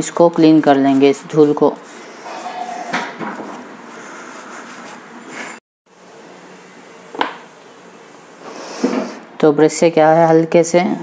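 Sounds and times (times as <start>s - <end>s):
toothbrush scrubbing circuit board: 0.2s - 3.0s.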